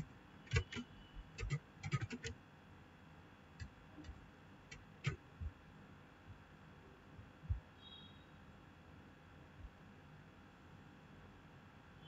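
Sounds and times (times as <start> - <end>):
keyboard and mouse clicks: 0.0 - 2.4, 3.6 - 5.2.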